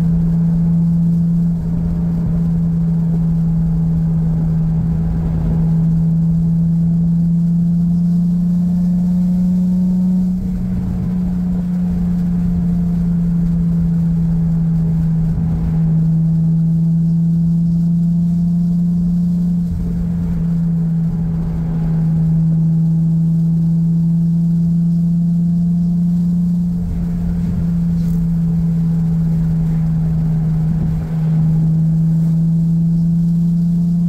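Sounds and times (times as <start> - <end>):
car engine droning: 0.0 - 34.0
road rumble: 0.0 - 34.0.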